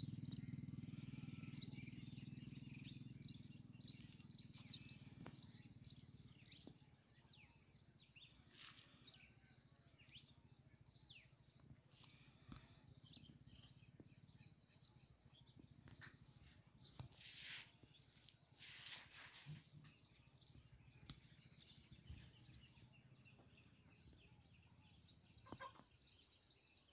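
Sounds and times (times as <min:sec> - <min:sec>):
soft bird calls: 0:00.0 - 0:26.9.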